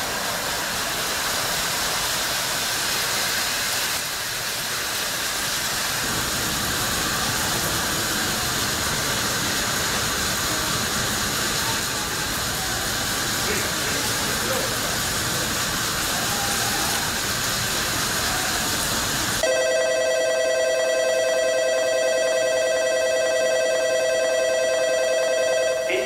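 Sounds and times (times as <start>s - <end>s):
steady rushing hiss: 0.0s - 19.4s
electronic platform bell ringing: 19.4s - 26.0s.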